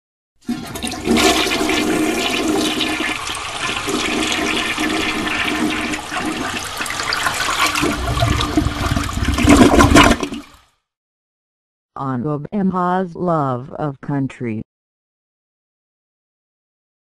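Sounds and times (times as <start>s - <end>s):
rushing water: 0.5s - 10.5s.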